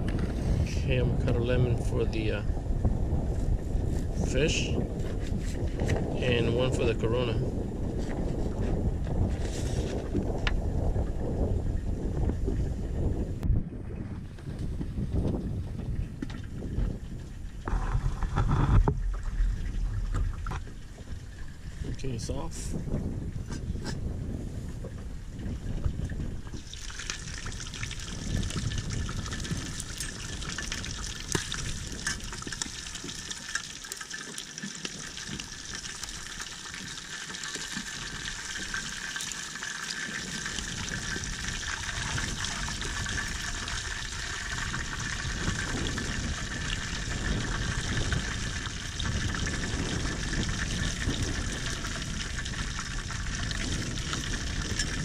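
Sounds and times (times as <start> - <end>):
fish sizzling in hot oil: 26.6 - 55.0.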